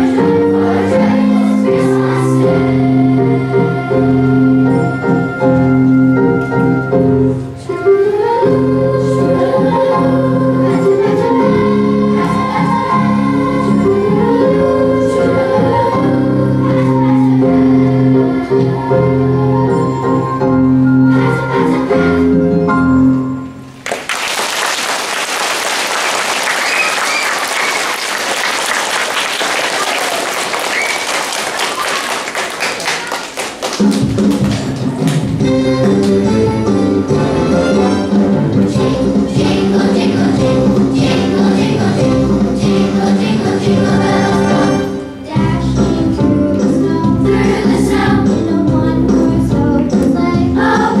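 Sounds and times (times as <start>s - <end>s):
children's choir singing: 0.0s - 23.2s, 25.8s - 51.0s
accompaniment music: 0.0s - 23.9s, 33.4s - 51.0s
audience applause: 23.8s - 35.2s
instrumental accompaniment: 33.5s - 51.0s.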